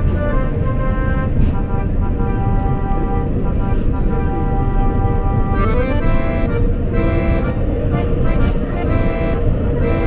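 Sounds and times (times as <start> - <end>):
instrumental chords: 0.0 - 10.0
low steady rumble: 0.0 - 10.0.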